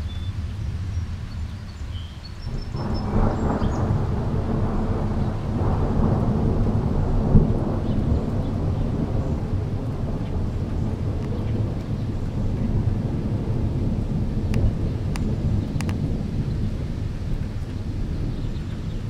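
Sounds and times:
thunder rumbling: 0:00.0 - 0:19.0.

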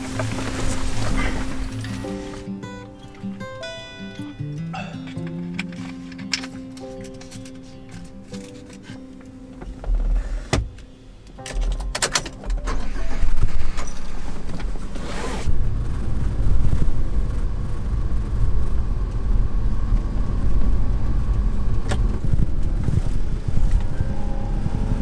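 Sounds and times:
truck engine drone from inside: 0:00.0 - 0:02.8, 0:04.6 - 0:06.5, 0:12.5 - 0:25.0.

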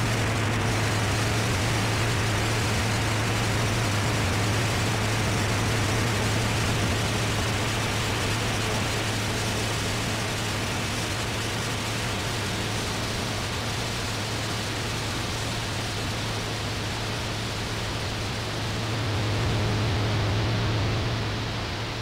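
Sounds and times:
static-like hiss: 0:00.0 - 0:22.0
low hum: 0:18.0 - 0:22.0.

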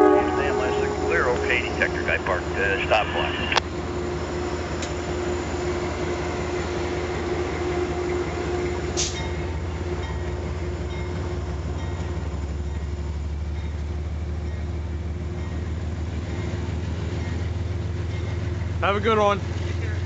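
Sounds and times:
steady hum: 0:00.0 - 0:03.6
train wheels rumbling on rail: 0:00.0 - 0:20.0.

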